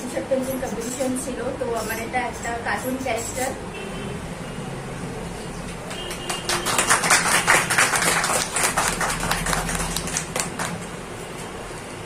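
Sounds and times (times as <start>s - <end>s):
people applauding: 5.8s - 11.0s.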